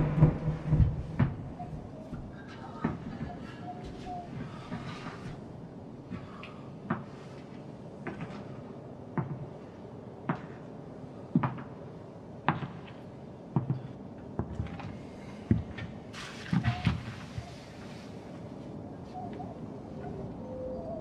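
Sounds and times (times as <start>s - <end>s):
hard-soled footsteps: 0.0s - 5.4s.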